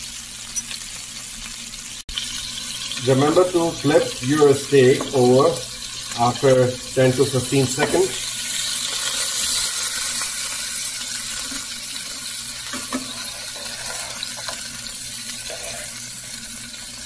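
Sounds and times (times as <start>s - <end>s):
steaks sizzling in a frying pan: 0.0s - 17.0s.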